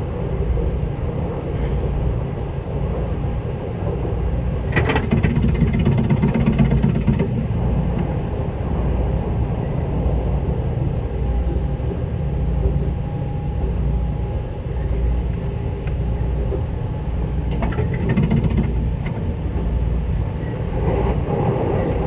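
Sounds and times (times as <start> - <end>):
train wheels rumbling on rails: 0.0 - 22.0
fast rattling clatter: 4.6 - 8.1, 17.5 - 19.4.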